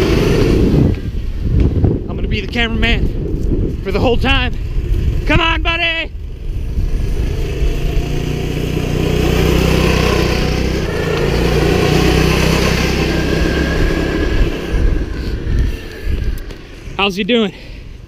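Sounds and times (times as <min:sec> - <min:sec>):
small gas engine running: 0:00.0 - 0:01.2, 0:06.1 - 0:16.9
dense rushing noise: 0:00.0 - 0:18.0.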